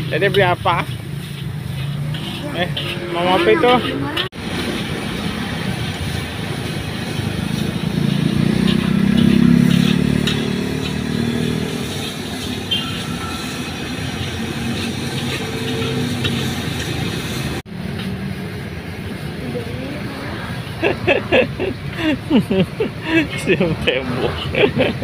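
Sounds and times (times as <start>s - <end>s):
metal spatula scraping a wok: 0.1s - 4.9s, 5.8s - 18.1s
motorbike engine passing: 0.7s - 25.0s.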